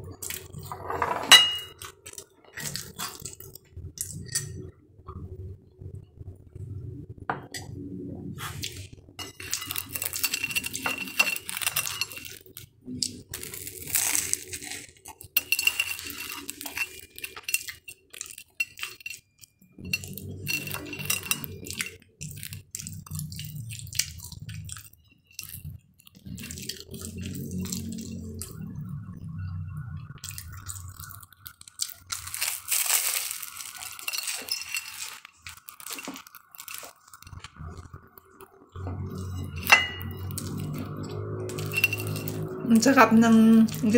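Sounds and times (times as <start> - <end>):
plate clinking: 0.7 - 1.8, 38.9 - 42.5.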